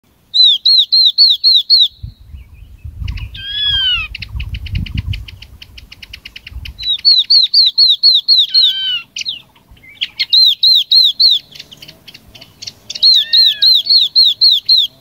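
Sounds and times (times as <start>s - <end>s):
bird whistled notes: 0.3s - 15.0s
bird chattering rattle: 3.5s - 15.0s.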